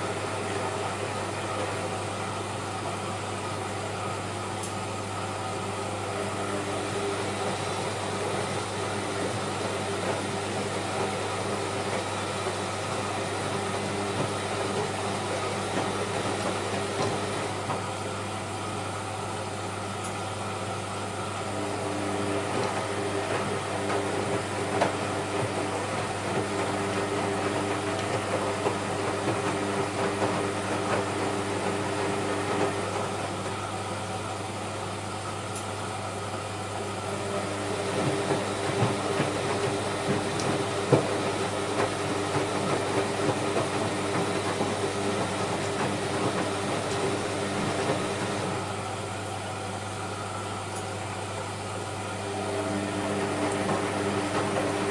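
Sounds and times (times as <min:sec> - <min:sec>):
washing machine motor hum: 0:00.0 - 0:54.9
laundry sloshing and thudding: 0:37.1 - 0:48.8.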